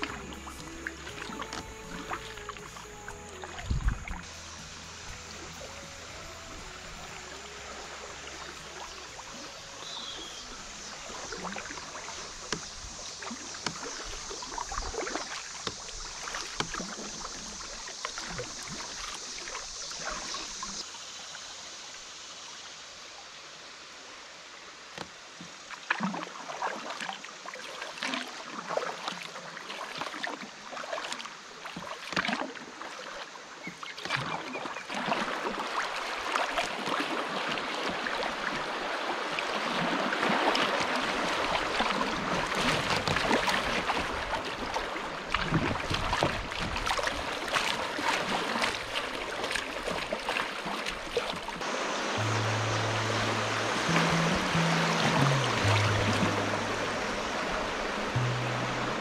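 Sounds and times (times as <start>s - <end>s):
whitewater rushing: 0.0s - 20.6s, 34.9s - 59.0s
water lapping around kayak hull: 0.0s - 20.9s, 24.7s - 59.0s
paddle splashes: 0.0s - 21.3s, 24.7s - 59.0s.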